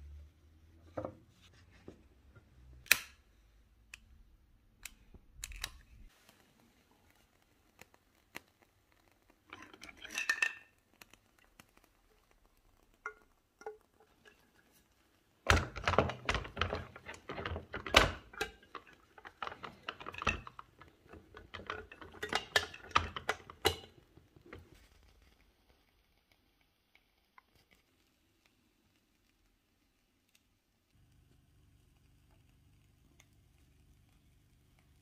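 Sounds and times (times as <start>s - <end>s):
clattering of metal: 15.5s - 24.7s.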